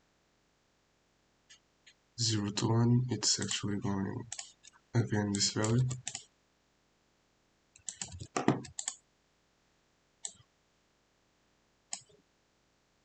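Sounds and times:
keyboard typing: 3.3 - 3.6, 4.2 - 6.2, 7.8 - 9.0.

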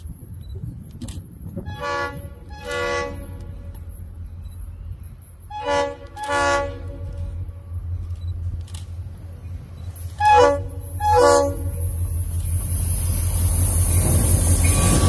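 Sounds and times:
locomotive air horn blasts: 1.6 - 3.6, 5.5 - 7.3, 10.2 - 11.9.

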